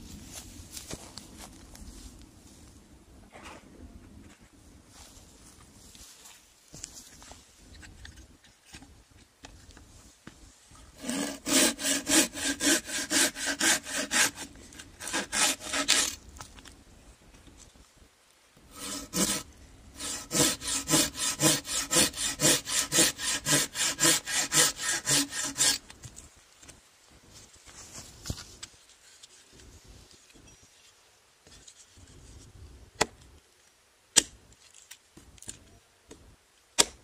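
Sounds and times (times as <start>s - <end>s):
pruning saw cutting stick: 11.0s - 16.2s, 18.7s - 25.8s.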